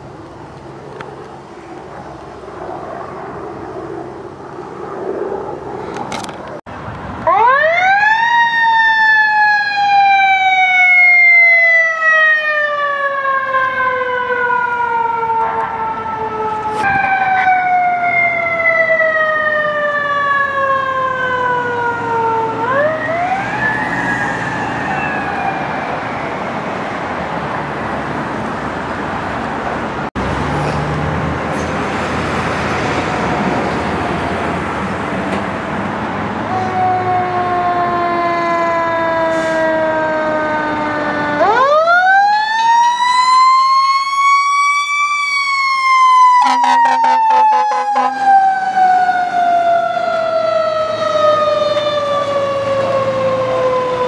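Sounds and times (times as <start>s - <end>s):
engine and road noise: 0.0s - 54.0s
fire truck siren winding: 36.5s - 54.0s.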